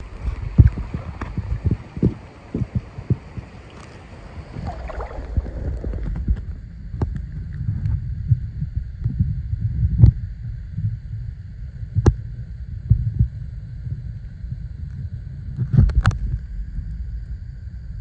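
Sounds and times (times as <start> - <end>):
stream water: 0.0 - 7.6
muffled underwater rumble: 0.0 - 18.0.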